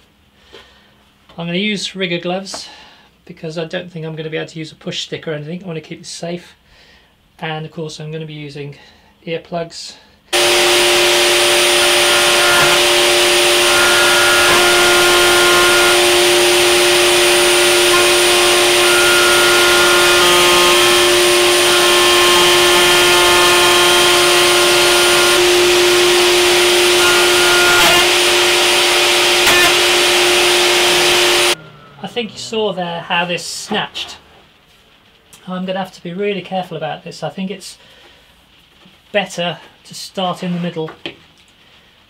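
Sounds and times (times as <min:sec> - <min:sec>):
router motor whining: 0:10.4 - 0:31.9
vacuum cleaner running: 0:10.4 - 0:32.0
sharp knocks of router bit: 0:29.4 - 0:30.0.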